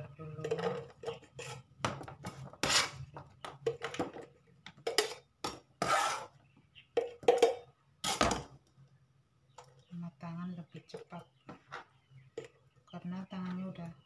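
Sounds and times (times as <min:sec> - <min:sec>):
knife scraping plastic cutting board: 0:02.3 - 0:03.0, 0:05.8 - 0:06.3.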